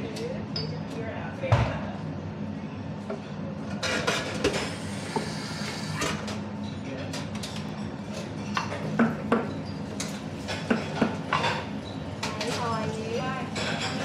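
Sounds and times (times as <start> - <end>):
steady low hum: 0.0 - 12.3
cups and glasses clinking: 13.6 - 14.0.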